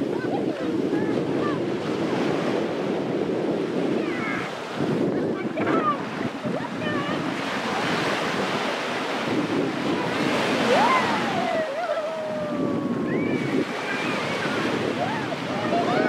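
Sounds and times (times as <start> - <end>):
small waves breaking on shore: 0.0 - 16.0
wind buffeting microphone: 0.0 - 16.0.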